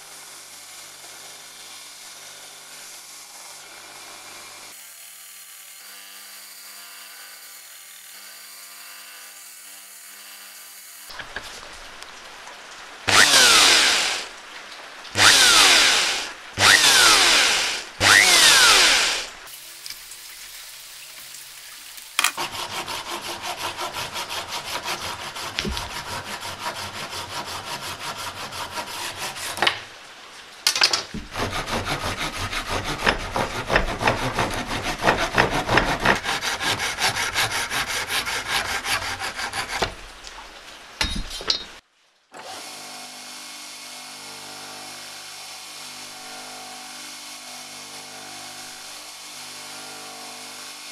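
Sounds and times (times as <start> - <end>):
drill boring through steel: 13.1 - 14.3, 15.2 - 19.6
hand saw cutting plastic: 13.1 - 14.3, 15.2 - 19.5, 22.2 - 29.9, 31.2 - 40.1.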